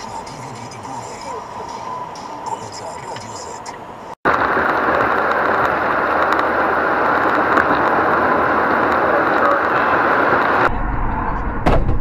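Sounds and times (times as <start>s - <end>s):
car engine running: 0.0s - 11.4s
tyres on the road: 0.0s - 12.0s.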